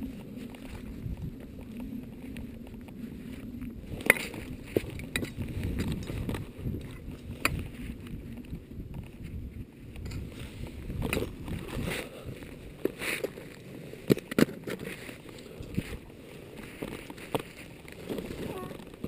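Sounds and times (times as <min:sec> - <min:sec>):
wind buffeting microphone: 0:00.0 - 0:19.0
climbing gear clicks and knocks: 0:00.1 - 0:19.0.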